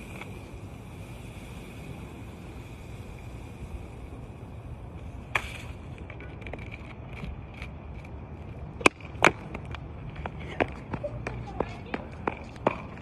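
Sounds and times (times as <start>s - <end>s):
running footsteps on asphalt: 6.2s - 13.0s.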